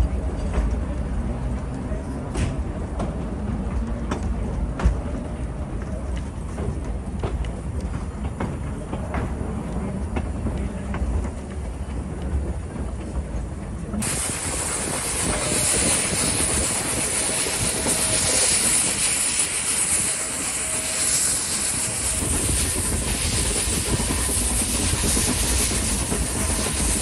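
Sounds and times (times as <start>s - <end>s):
deep train rumble: 0.0s - 27.0s
train wheels rattling over track: 0.0s - 27.0s
steam hissing: 14.0s - 27.0s.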